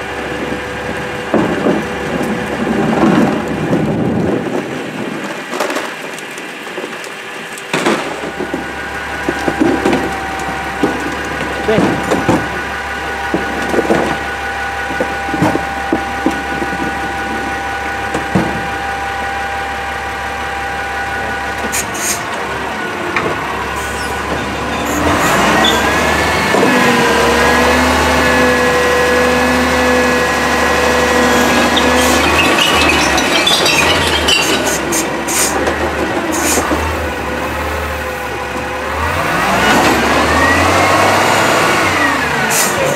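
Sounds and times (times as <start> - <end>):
truck engine whining: 0.0 - 42.9
carts knocking: 7.7 - 14.3.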